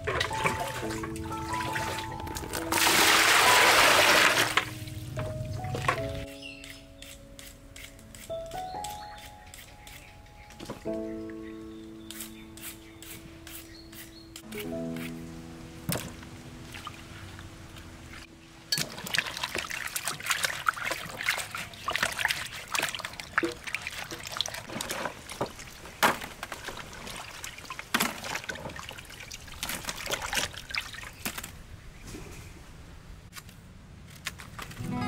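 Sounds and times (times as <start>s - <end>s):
water splashing in a basin: 0.0s - 5.0s, 18.7s - 31.5s.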